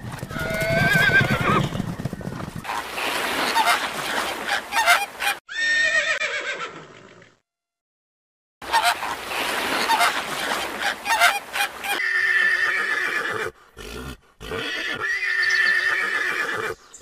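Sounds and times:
horses whinnying: 0.2s - 2.7s, 5.5s - 7.2s, 12.0s - 16.8s.

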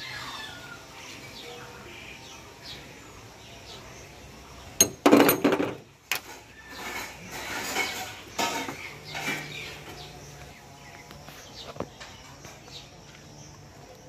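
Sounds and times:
metal tools clinking and clanking: 4.8s - 9.7s.

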